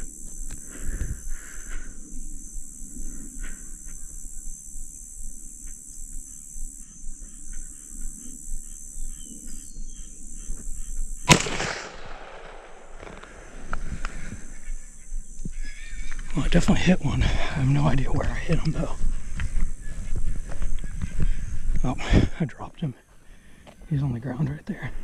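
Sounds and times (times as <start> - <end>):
rifle shot with echo: 11.3 - 13.8.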